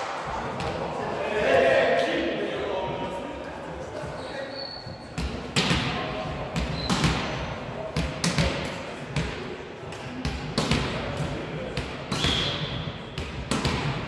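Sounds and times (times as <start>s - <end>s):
volleyball hits echoing: 5.2s - 14.0s.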